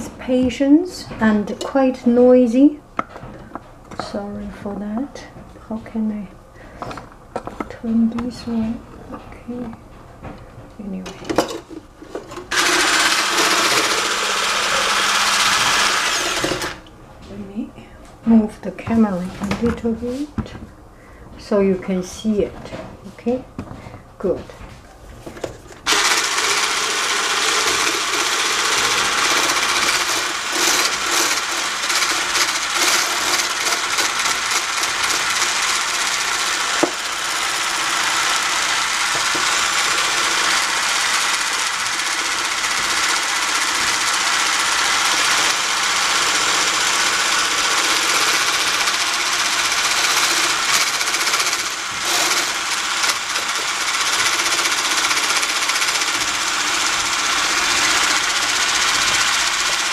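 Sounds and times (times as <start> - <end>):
stick blender whipping cream: 12.5 - 16.9, 25.9 - 59.9.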